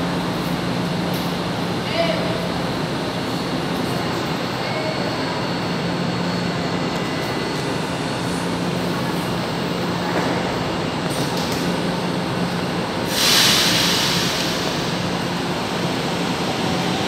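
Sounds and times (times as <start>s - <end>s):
hissing air burst: 13.1s - 15.0s.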